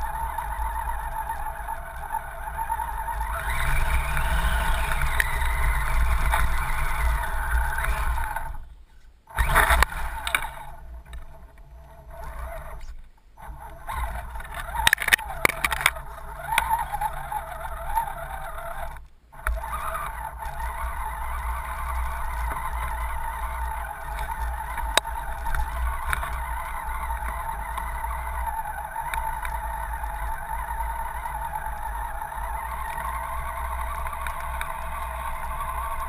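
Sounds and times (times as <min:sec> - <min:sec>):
electric motor whining: 0:00.0 - 0:36.0
water splashing at wheels: 0:13.5 - 0:36.0.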